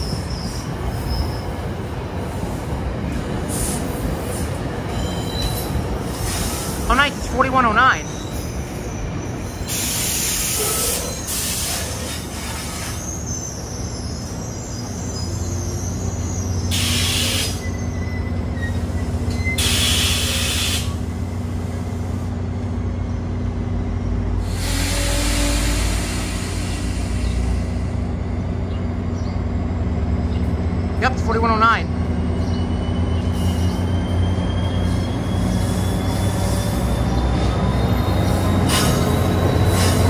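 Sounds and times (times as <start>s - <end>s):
train rolling slowly: 0.0s - 40.0s
hissing air bursts: 9.7s - 13.0s, 19.6s - 21.0s.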